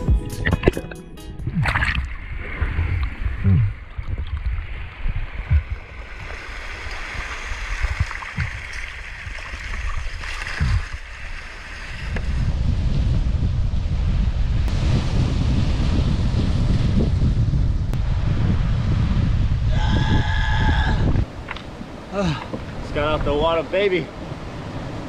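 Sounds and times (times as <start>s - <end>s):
water sloshing and gurgling: 0.6s - 12.6s
wind on microphone: 1.4s - 23.4s
waves rushing: 1.5s - 12.5s, 20.5s - 25.0s.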